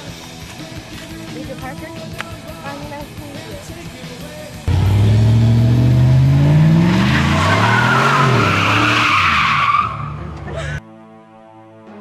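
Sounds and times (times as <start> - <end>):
truck engine revving: 4.6 - 10.5
tyres squealing: 6.1 - 10.5.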